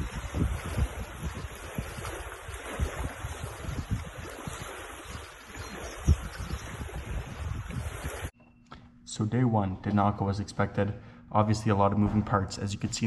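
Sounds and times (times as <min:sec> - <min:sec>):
wind buffeting microphone: 0:00.0 - 0:08.3
choppy lake water: 0:00.0 - 0:08.4.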